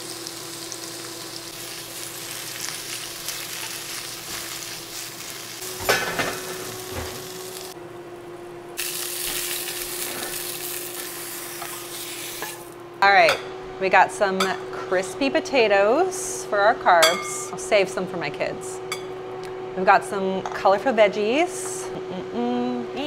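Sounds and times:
potatoes sizzling in oil: 0.0 - 7.8, 8.8 - 12.7
steady low hum: 5.6 - 23.0.

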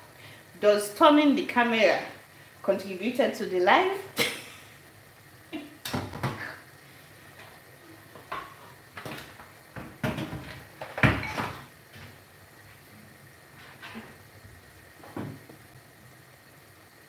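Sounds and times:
pots and utensils clinking: 8.2 - 9.1, 10.0 - 11.7.

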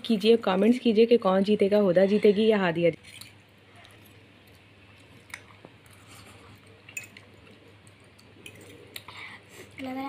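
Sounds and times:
faint chewing of noodles: 3.2 - 9.8.

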